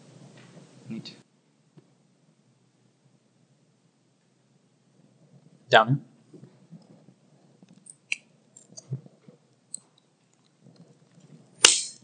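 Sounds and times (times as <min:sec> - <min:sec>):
microphone handling noise: 0:08.7 - 0:09.4.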